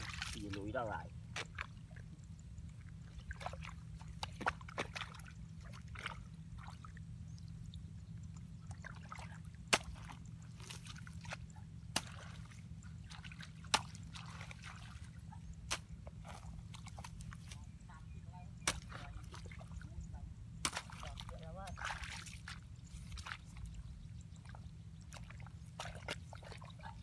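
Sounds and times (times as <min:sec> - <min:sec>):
low steady hum: 0:00.0 - 0:27.0
hoe chopping into wet mud: 0:09.7 - 0:12.5, 0:13.2 - 0:14.8, 0:15.6 - 0:17.5, 0:18.6 - 0:19.3, 0:20.6 - 0:21.2.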